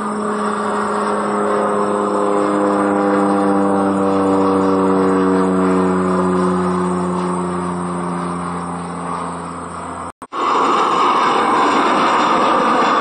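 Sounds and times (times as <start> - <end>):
propeller plane passing overhead: 0.0 - 13.0.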